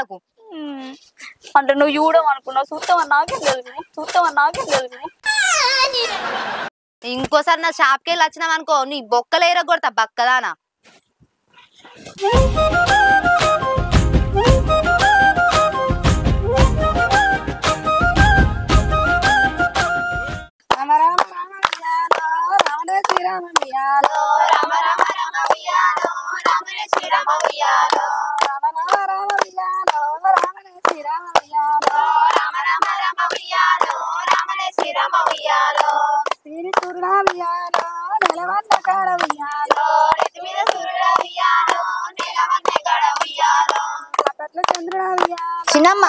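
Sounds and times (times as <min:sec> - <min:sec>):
hand-clapping: 0:20.6 - 0:46.0
women and girls singing: 0:20.8 - 0:46.0.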